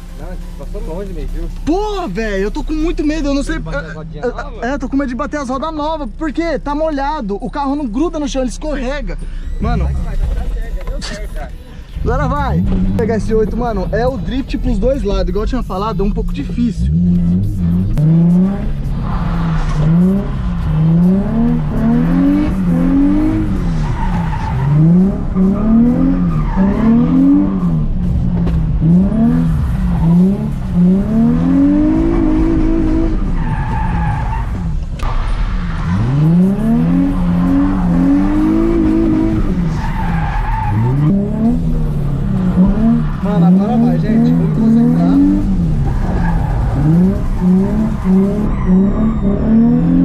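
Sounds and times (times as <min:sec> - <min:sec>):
car engine revving: 0:12.0 - 0:50.0.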